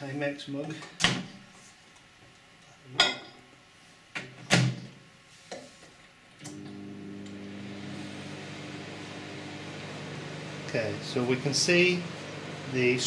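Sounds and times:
microwave oven humming: 0:06.4 - 0:13.0.

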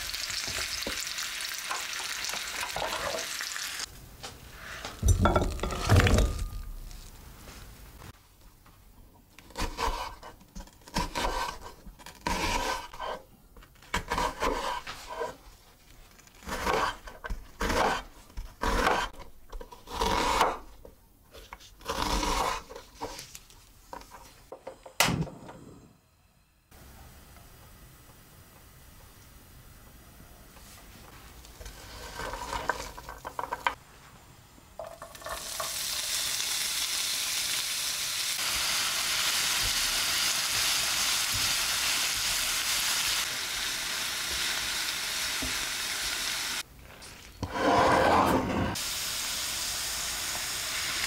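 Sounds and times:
potato slices sizzling in oil: 0:00.0 - 0:03.9, 0:34.8 - 0:46.7, 0:48.8 - 0:51.0
knife slicing onion on board: 0:09.5 - 0:13.2, 0:13.9 - 0:15.4, 0:16.4 - 0:20.7.

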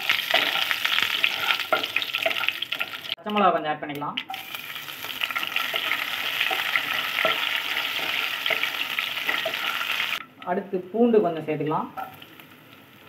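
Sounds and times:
food sizzling in oil: 0:00.0 - 0:03.2, 0:04.3 - 0:10.2, 0:12.0 - 0:13.0
wooden spatula stirring: 0:00.1 - 0:02.9, 0:05.0 - 0:10.0.

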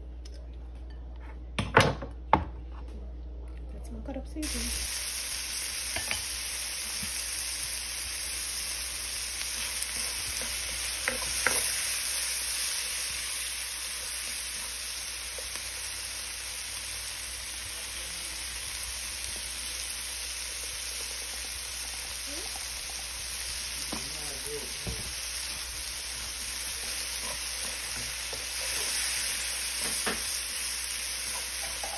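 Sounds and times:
vegetables sizzling in frying pan: 0:04.4 - 0:31.9
spatula knocking and scraping pan: 0:10.0 - 0:11.9, 0:29.8 - 0:30.4.

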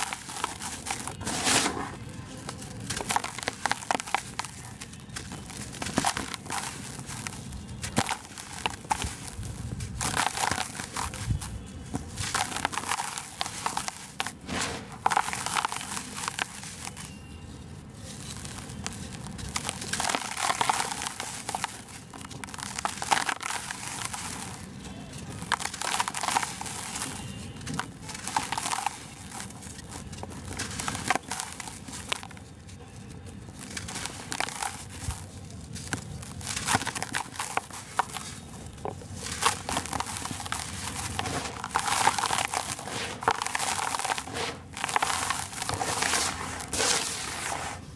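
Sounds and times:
blocks crunching by hand: 0:00.0 - 0:17.2, 0:17.8 - 0:47.9
powder trickling: 0:00.0 - 0:47.9.

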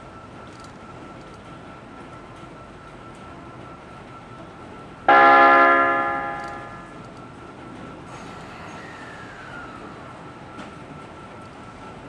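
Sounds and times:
train horn blast: 0:05.1 - 0:07.0.

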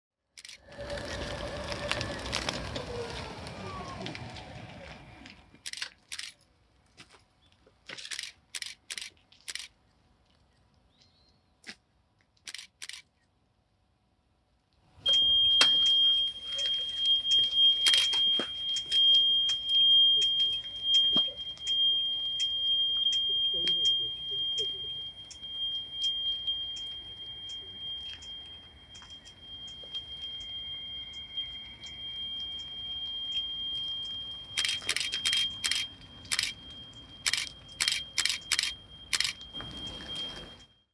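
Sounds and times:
small clicks: 0:07.9 - 0:10.4, 0:11.6 - 0:13.3
high-pitched electronic tone: 0:15.1 - 0:40.8.

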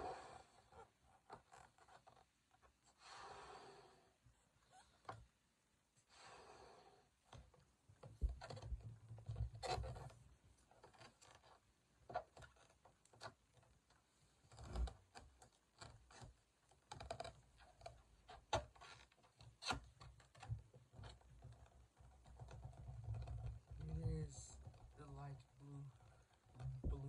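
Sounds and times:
rubber balloon squeaks and rubs: 0:00.0 - 0:02.8, 0:08.1 - 0:12.8, 0:14.4 - 0:27.0.

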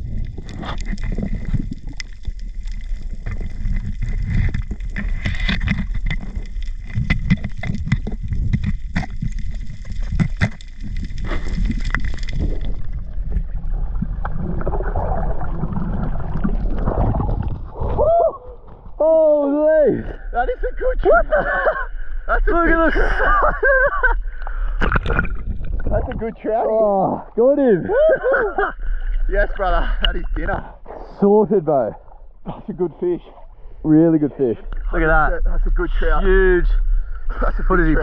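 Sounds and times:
water sloshing at surface: 0:00.0 - 0:19.0, 0:24.6 - 0:27.5
muffled underwater rumble: 0:00.0 - 0:19.1, 0:21.1 - 0:31.2, 0:31.9 - 0:38.0
sharp crackling clicks: 0:00.1 - 0:13.0.

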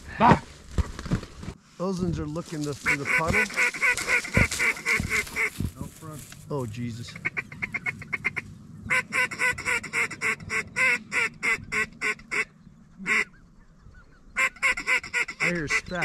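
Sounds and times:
goose clucking: 0:02.8 - 0:05.6, 0:07.1 - 0:13.4, 0:14.3 - 0:16.0
goose honking: 0:02.8 - 0:05.6, 0:07.1 - 0:13.4, 0:14.4 - 0:16.0.

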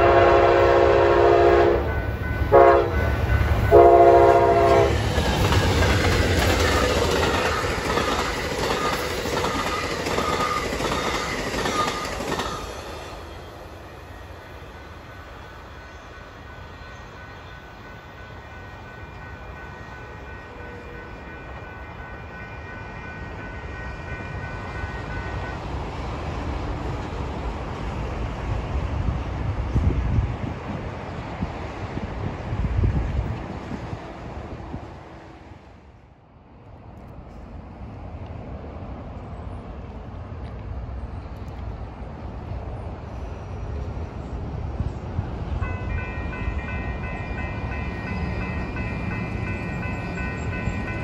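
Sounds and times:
locomotive horn blasts: 0:00.0 - 0:05.0
train rumble and clickety-clack: 0:00.0 - 0:51.0.

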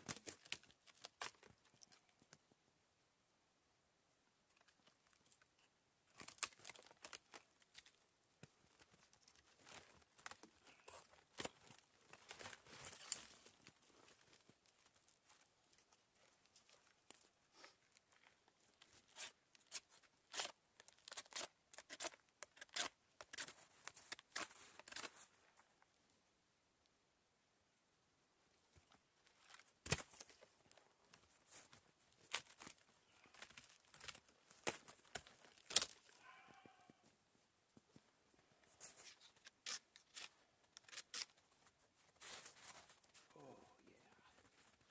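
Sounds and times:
dry wood cracking and splintering: 0:06.1 - 0:08.0, 0:32.2 - 0:36.5.

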